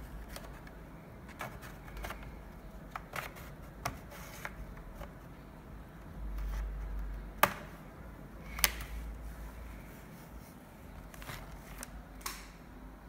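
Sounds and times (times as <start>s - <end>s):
plastic clips snapping loose: 8.5s - 8.9s, 11.8s - 12.6s.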